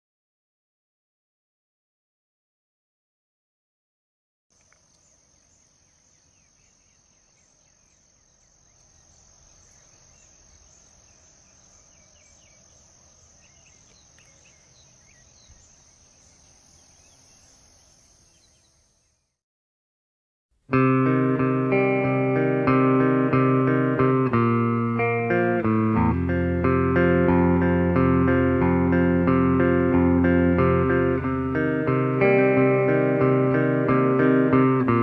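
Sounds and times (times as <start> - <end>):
crickets trilling: 4.5 - 19.3.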